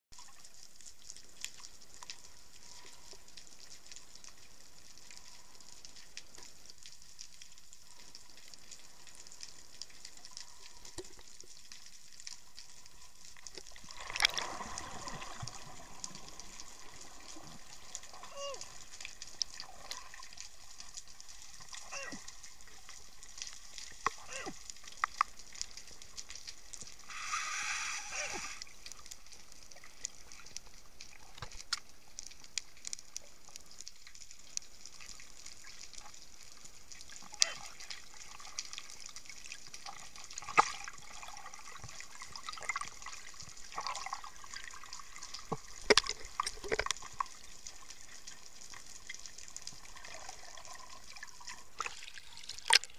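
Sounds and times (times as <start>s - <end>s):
bubbling: 13.4s - 28.8s, 49.1s - 52.9s
underwater clicks and pops: 25.0s - 25.4s, 45.4s - 47.3s, 51.8s - 52.9s
underwater hiss: 26.8s - 29.0s.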